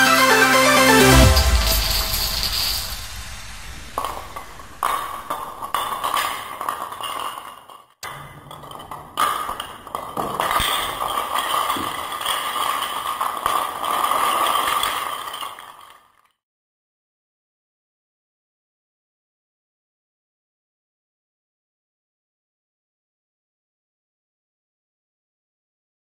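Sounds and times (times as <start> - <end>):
dominoes clattering on hard floor: 4.0 - 16.4.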